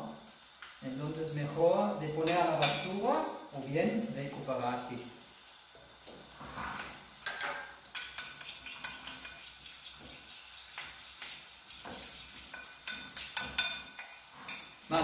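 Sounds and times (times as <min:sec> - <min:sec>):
clinks and scrapes on ceramic plate: 0:06.5 - 0:14.8.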